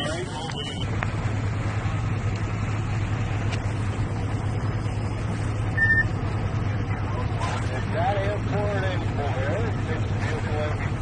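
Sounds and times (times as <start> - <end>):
low engine hum: 0.0 - 11.0
outdoor noise: 0.0 - 11.0
short high beep: 5.8 - 6.2.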